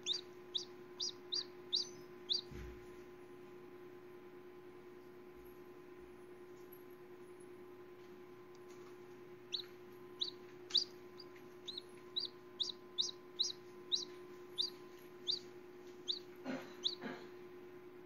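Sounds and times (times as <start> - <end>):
chick peeping: 0.0 - 2.8, 9.5 - 17.1.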